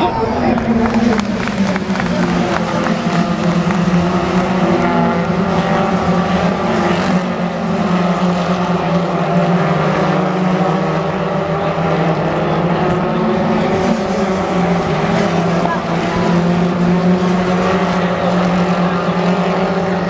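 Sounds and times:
racing car engines droning: 0:00.0 - 0:20.0.

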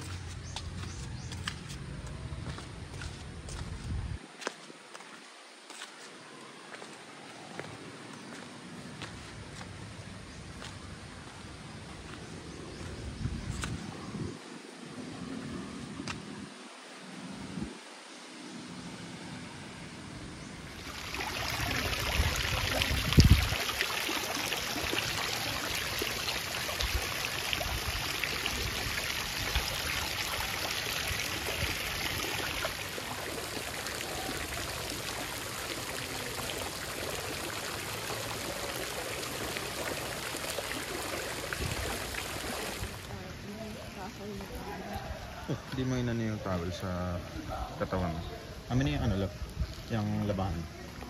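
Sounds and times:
water jets splashing: 0:20.7 - 0:44.9.

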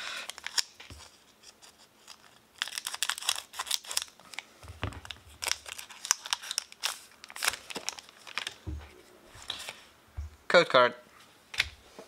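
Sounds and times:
foil wrapper crinkling: 0:00.3 - 0:08.7.

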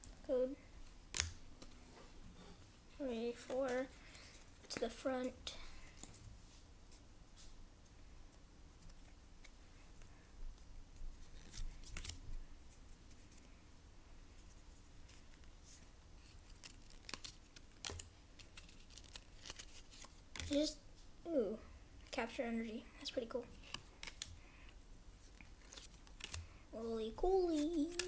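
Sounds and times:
trading cards sliding: 0:27.2 - 0:28.0.

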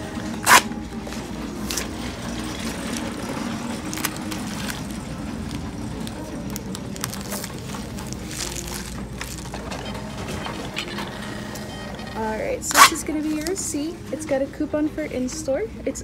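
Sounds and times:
plastic package clicks and rustles: 0:01.6 - 0:10.9.

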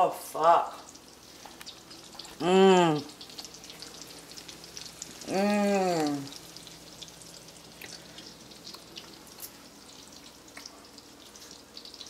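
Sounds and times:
mushrooms sizzling in skillet: 0:00.0 - 0:12.0
woman's drawn-out vocal sound: 0:02.4 - 0:03.1, 0:05.2 - 0:06.3.

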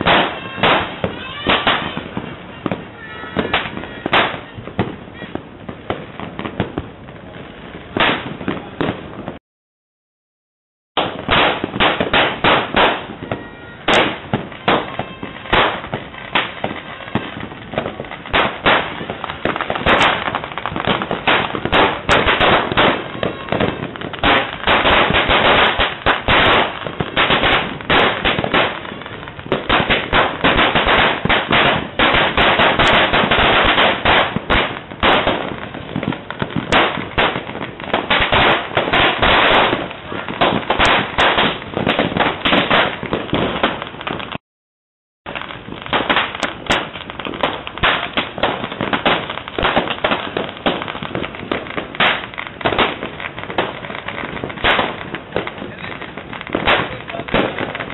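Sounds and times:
firecrackers bangs and crackles: 0:00.0 - 0:09.4, 0:11.0 - 0:44.4, 0:45.2 - 0:57.9
sharp loud cracks: 0:45.3 - 0:57.9.

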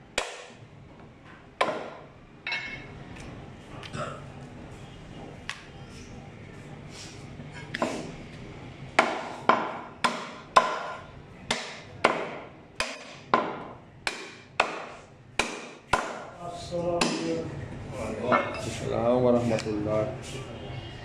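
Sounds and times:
cleaver chopping bone on wood: 0:00.2 - 0:00.6, 0:01.6 - 0:02.0, 0:09.0 - 0:16.3, 0:17.0 - 0:17.3.

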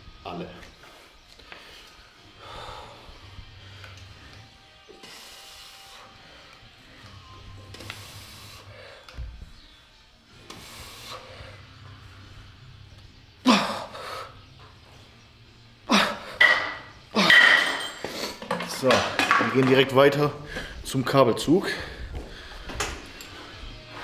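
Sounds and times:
man breathing hard: 0:00.8 - 0:09.5, 0:20.4 - 0:20.8, 0:21.6 - 0:24.0.

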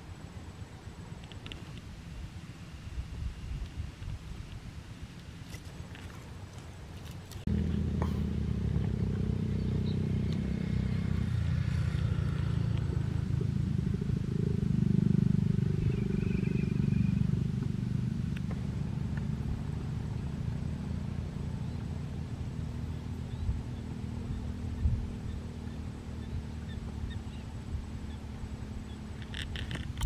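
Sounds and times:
small engine running: 0:07.5 - 0:30.0.

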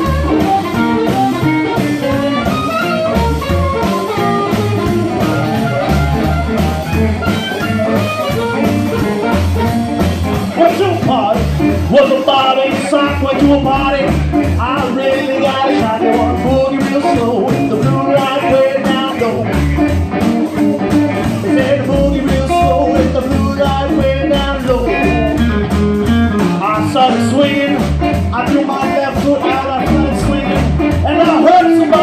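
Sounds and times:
amplified harmonica wailing: 0:00.0 - 0:10.5
drums: 0:00.0 - 0:32.0
electric guitar: 0:00.0 - 0:32.0
upright bass: 0:00.0 - 0:32.0.

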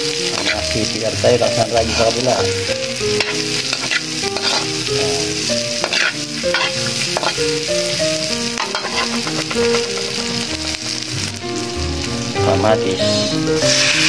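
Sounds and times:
food sizzling in hot oil: 0:00.0 - 0:14.0
spatula scraping a pan: 0:00.2 - 0:02.4, 0:03.1 - 0:11.0, 0:13.1 - 0:14.0.

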